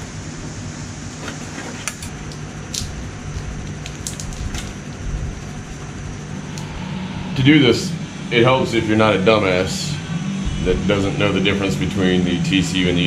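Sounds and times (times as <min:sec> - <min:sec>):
steady low hum: 0:00.0 - 0:13.0
wire handling noise: 0:01.2 - 0:06.7.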